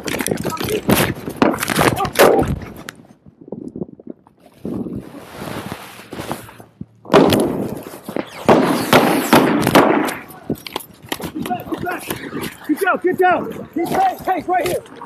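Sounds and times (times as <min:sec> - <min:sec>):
camera rubbing and rustling: 0:04.3 - 0:09.8, 0:10.4 - 0:15.0.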